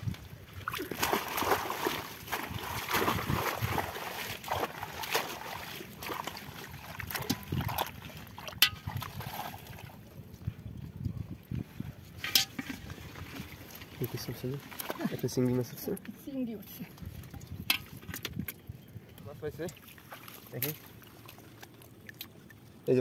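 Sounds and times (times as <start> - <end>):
water sloshing and splashing: 0.0 - 23.0.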